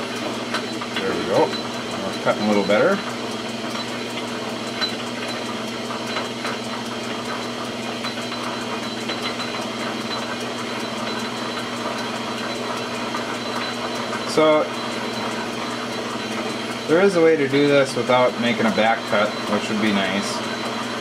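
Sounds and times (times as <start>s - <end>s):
lathe motor hum: 0.0s - 21.0s.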